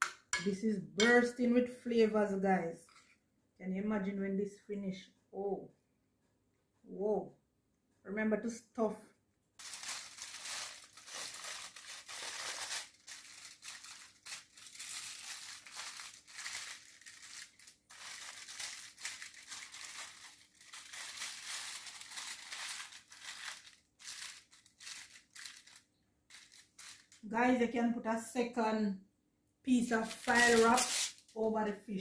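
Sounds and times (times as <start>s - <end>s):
aluminium foil crinkling: 9.6s - 27.2s, 29.9s - 31.4s.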